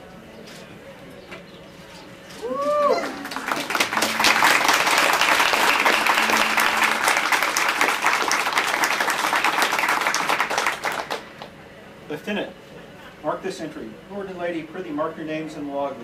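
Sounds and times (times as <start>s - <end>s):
person whooping: 2.4s - 7.6s
crowd clapping and cheering: 2.6s - 11.5s.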